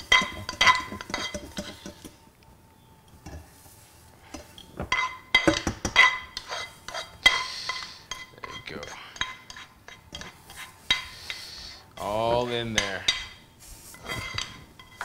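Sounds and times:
metal utensil clinking on pot: 0.0 - 2.1, 4.3 - 11.1, 12.7 - 13.4, 14.0 - 15.0.

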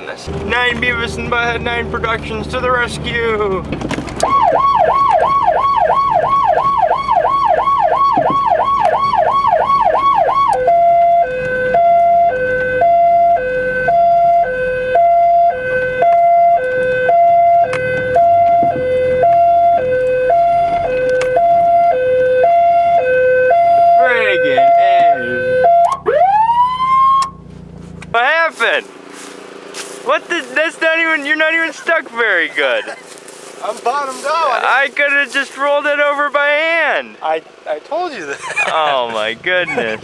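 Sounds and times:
electronic siren yelp: 4.2 - 27.4
two-tone siren: 4.2 - 27.5.

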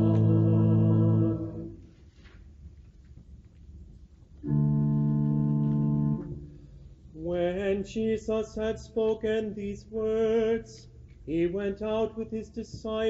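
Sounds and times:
pipe organ chords: 0.0 - 1.8, 4.4 - 7.7.

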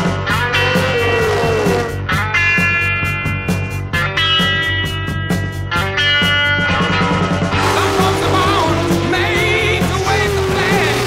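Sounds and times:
electric guitar: 0.0 - 11.0
steady drum beat: 0.3 - 2.3, 7.6 - 11.0.

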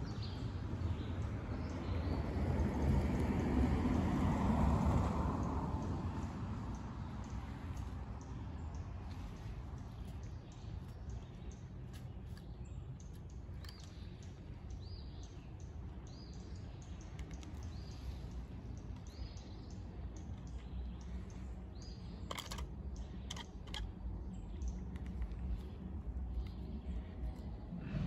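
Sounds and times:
low steady rumble: 0.0 - 28.0
woodpecker pecking wood: 22.2 - 24.0.

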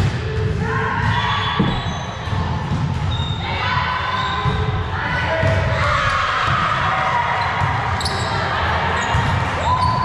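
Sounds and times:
ball thump in gym hall: 1.0 - 3.2.

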